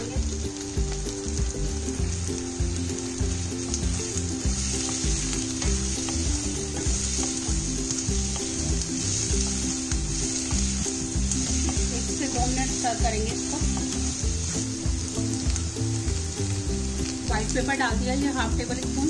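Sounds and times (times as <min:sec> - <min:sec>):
vegetables sizzling in oil: 0:00.0 - 0:19.0
wooden spatula scraping wok: 0:03.2 - 0:15.7.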